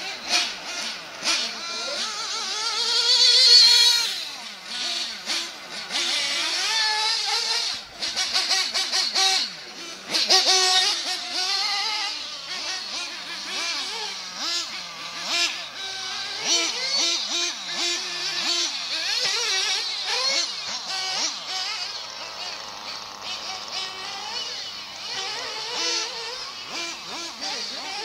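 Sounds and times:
small engine revving with high whine: 0.0 - 28.0.

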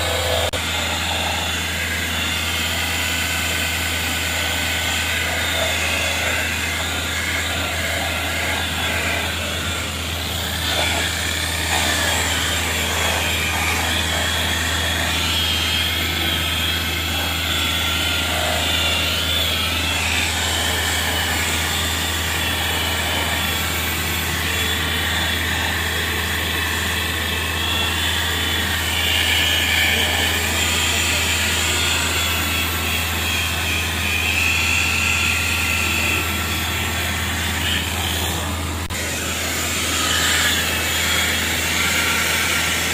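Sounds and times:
electric polisher motor whine: 0.0 - 42.9.

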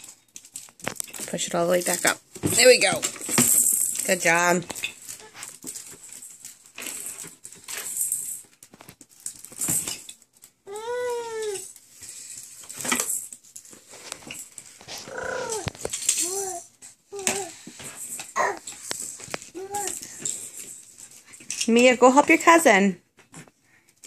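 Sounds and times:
plastic toys clattering: 0.0 - 22.7
baby squealing: 15.0 - 16.6.

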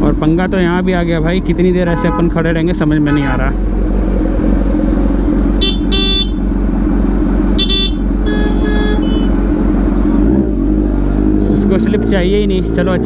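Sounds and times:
vehicle horn toots: 1.9 - 2.3, 3.0 - 3.5, 5.6 - 6.4, 7.6 - 9.4.

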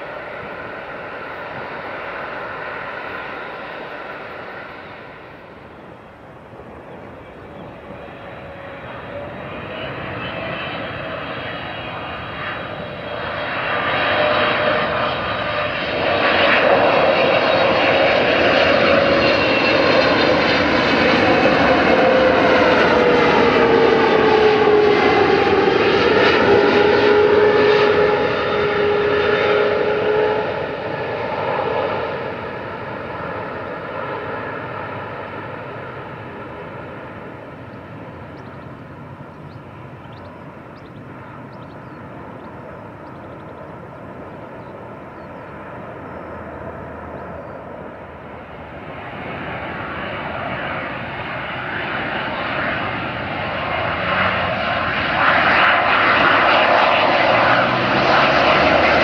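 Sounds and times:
jet whine dropping in pitch: 0.0 - 32.3, 46.1 - 59.0
jet engine noise: 0.0 - 59.0.

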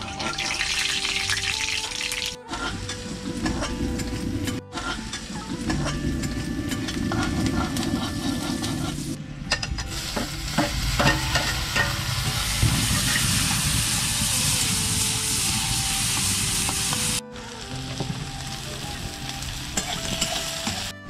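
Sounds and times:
food sizzling in a wok: 0.0 - 2.4, 9.9 - 20.9
metal spatula scraping a pan: 2.5 - 13.6, 19.8 - 20.9.

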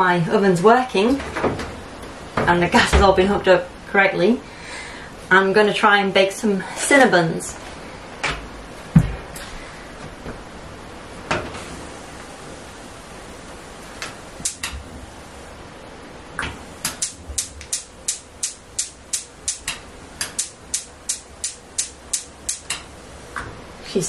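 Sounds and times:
oven spark igniter clicking: 14.0 - 14.8, 16.4 - 22.9.

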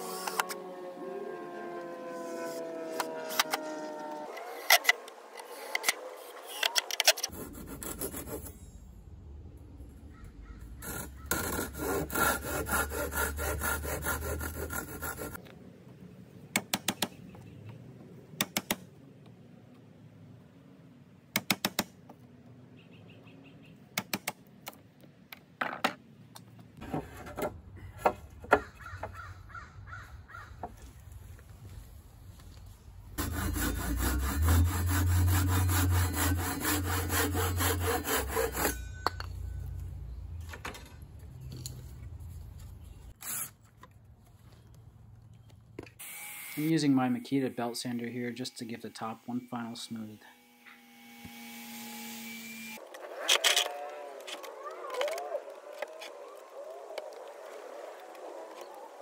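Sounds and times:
handsaw cutting wood: 0.0 - 0.8, 7.2 - 8.6, 10.8 - 15.4, 33.2 - 38.9.

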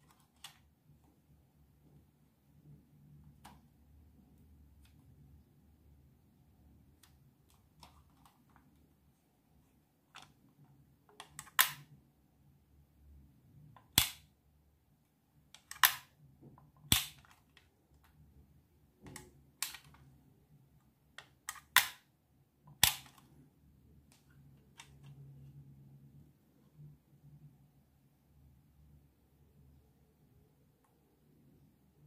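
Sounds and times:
plastic camera clicks and snaps: 11.2 - 11.9, 13.8 - 14.3, 15.6 - 16.1, 16.9 - 17.6, 21.2 - 22.0, 22.8 - 23.3.

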